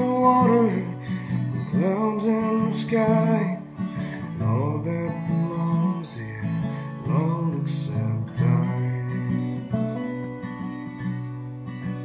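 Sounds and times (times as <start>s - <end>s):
acoustic guitar chords: 0.0s - 12.0s.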